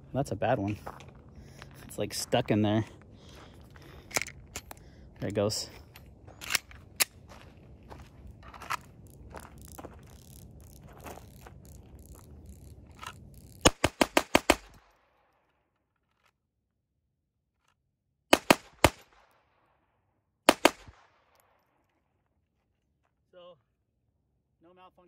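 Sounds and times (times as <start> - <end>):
footsteps on gravel: 0.3 - 13.8
pistol shots: 13.6 - 14.9, 18.3 - 19.2, 20.5 - 21.1.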